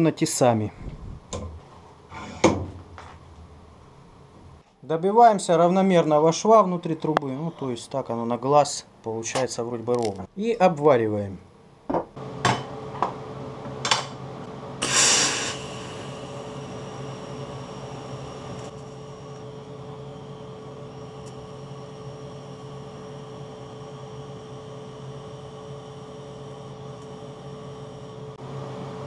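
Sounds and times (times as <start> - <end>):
low machine hum: 0.4 - 4.6, 12.2 - 29.0
short hiss: 14.8 - 16.2.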